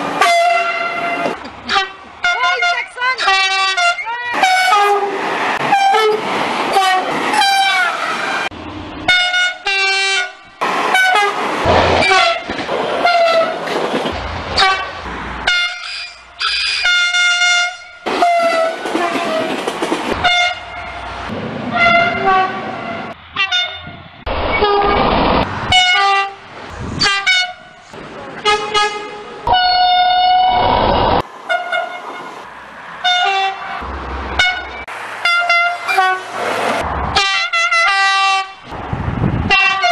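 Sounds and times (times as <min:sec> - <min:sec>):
trains rushing past: 0:00.0 - 0:09.6, 0:10.2 - 0:23.4, 0:24.0 - 0:37.4
train horn blasts: 0:00.2 - 0:08.0, 0:09.1 - 0:11.4, 0:14.6 - 0:19.5, 0:20.2 - 0:21.0, 0:21.7 - 0:24.0, 0:28.4 - 0:30.4, 0:33.0 - 0:33.7, 0:39.5 - 0:39.9.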